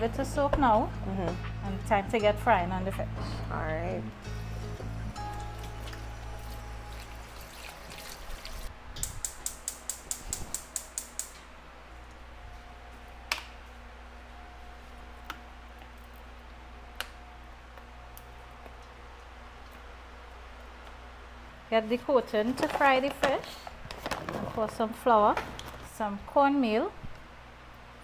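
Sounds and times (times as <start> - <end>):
low steady hum: 0.0 - 28.0
gas stove igniter clicking: 9.0 - 11.4.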